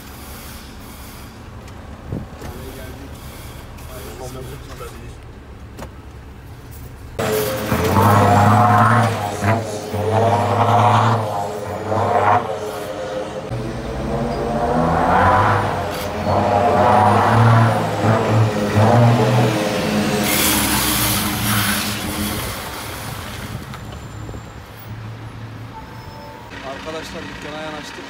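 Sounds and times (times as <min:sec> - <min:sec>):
compressed air hiss: 0:00.0 - 0:01.6
truck diesel engine: 0:00.0 - 0:28.0.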